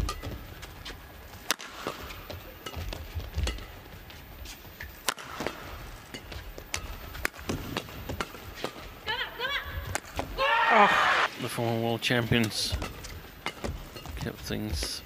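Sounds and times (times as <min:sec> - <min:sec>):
racket striking shuttlecock: 0:01.3 - 0:03.9, 0:04.8 - 0:09.0, 0:09.8 - 0:10.4, 0:12.4 - 0:14.1.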